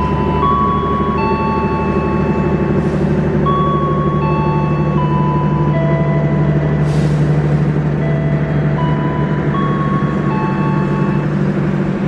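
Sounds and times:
whining tones shifting pitch: 0.0 - 6.8
train low drone: 0.0 - 12.0.

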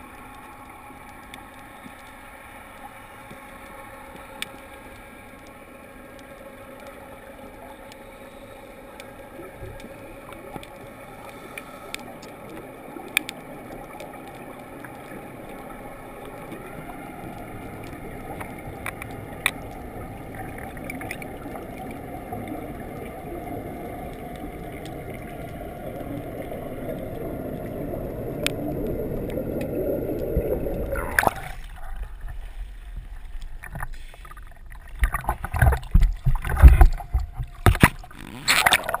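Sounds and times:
underwater rush of water: 0.0 - 39.0
underwater scooter humming: 0.0 - 39.0
water splashing and sloshing: 0.0 - 39.0.

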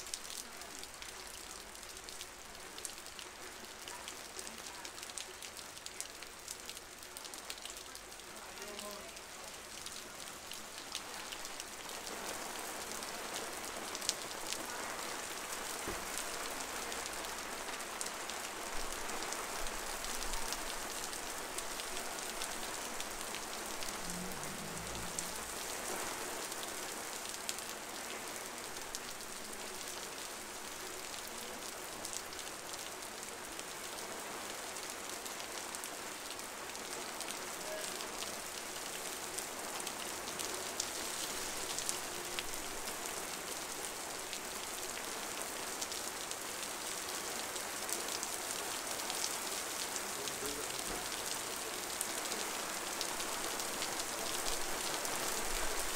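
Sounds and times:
heavy rain on street: 0.0 - 55.9.

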